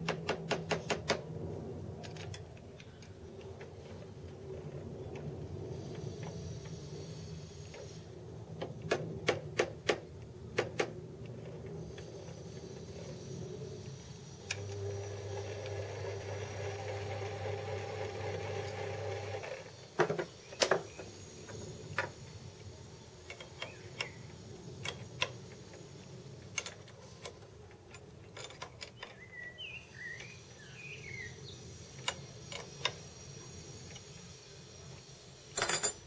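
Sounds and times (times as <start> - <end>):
lathe motor humming: 14.5 - 19.7
metal clicks and knocks: 26.4 - 29.2.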